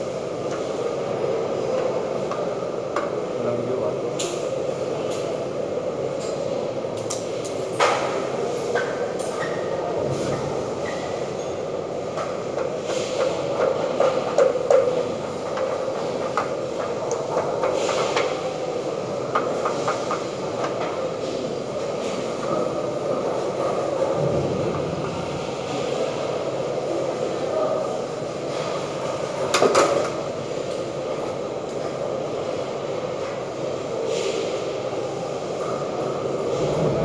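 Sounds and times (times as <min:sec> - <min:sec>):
loud mechanical din: 0:36.5 - 0:37.0.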